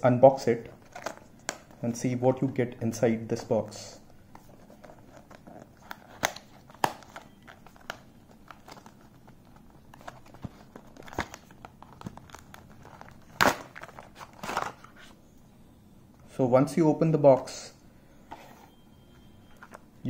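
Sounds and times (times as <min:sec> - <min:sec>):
cardboard rustling and crinkling: 0:04.2 - 0:15.2.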